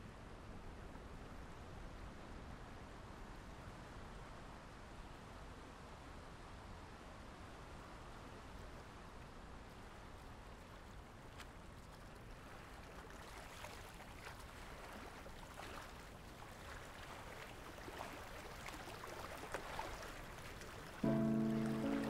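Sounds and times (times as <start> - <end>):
soft drips and splashes: 7.4 - 22.0
water lapping against boat: 10.5 - 22.0.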